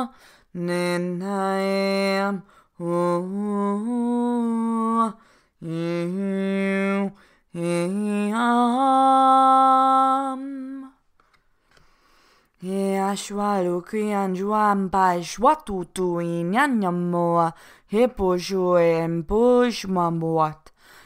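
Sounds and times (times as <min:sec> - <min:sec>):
breaths: 0:00.1 - 0:00.6, 0:02.4 - 0:02.8, 0:05.2 - 0:05.6, 0:07.1 - 0:07.6, 0:11.3 - 0:12.6, 0:17.5 - 0:17.9, 0:20.7 - 0:21.0.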